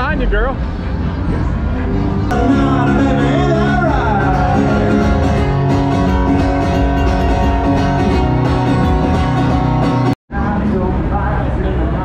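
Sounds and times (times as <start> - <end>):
amplified guitars: 2.0 - 10.6
live country band: 2.3 - 10.2.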